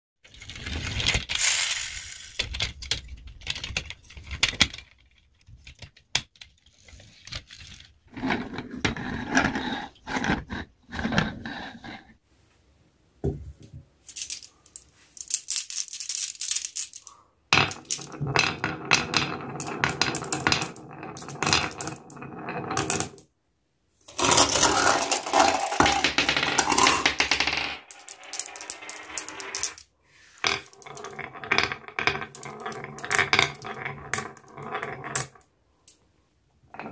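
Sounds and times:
marbles clattering on wooden run: 0:00.3 - 0:09.6, 0:14.1 - 0:23.2, 0:24.1 - 0:29.8, 0:30.4 - 0:35.4.

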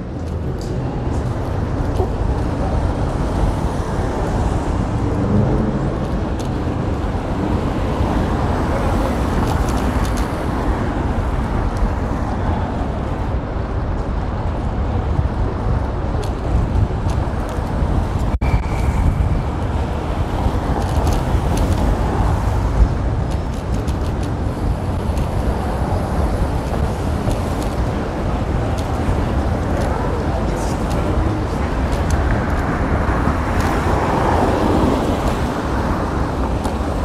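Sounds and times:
city street traffic: 0:00.0 - 0:37.0.

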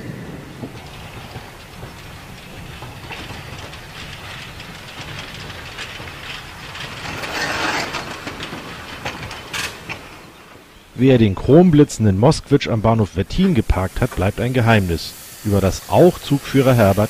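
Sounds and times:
steam hiss: 0:00.0 - 0:09.9, 0:12.8 - 0:17.0
wheels clattering on track: 0:00.0 - 0:11.8
steam locomotive running: 0:00.0 - 0:17.0.

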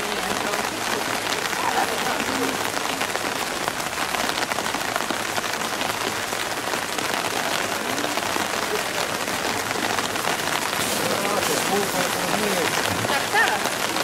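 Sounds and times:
heavy rain on pavement: 0:00.0 - 0:14.0.

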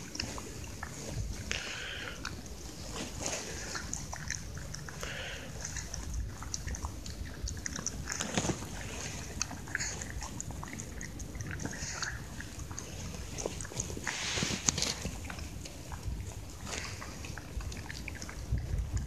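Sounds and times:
dog chewing from plastic bowl: 0:00.0 - 0:19.0
low steady rumble: 0:00.0 - 0:19.0.

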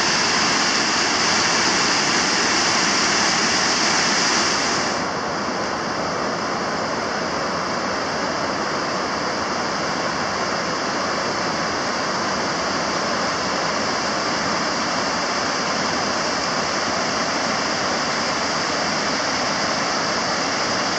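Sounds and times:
river rushing over a weir: 0:00.0 - 0:20.9.

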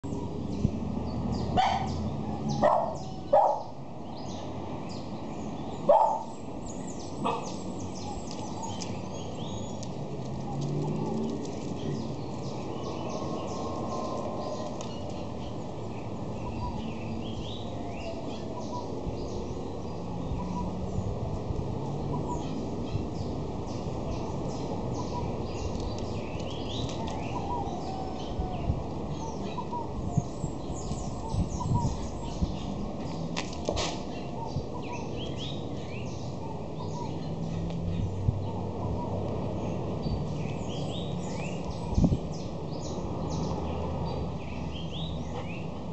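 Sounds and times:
outdoor background noise: 0:00.0 - 0:45.9
small birds chirping: 0:00.0 - 0:45.9
dog barking: 0:01.6 - 0:02.0, 0:02.6 - 0:03.7, 0:05.9 - 0:06.3, 0:07.2 - 0:07.6.

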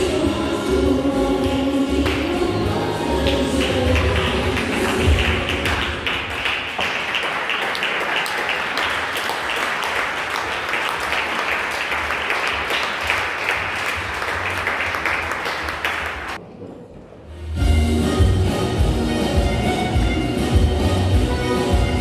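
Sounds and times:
audience applauding: 0:03.2 - 0:16.4.

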